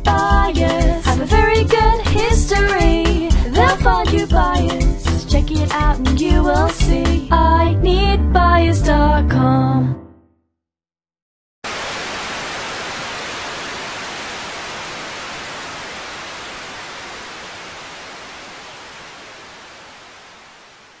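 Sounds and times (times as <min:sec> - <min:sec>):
static hiss: 0:11.7 - 0:21.0.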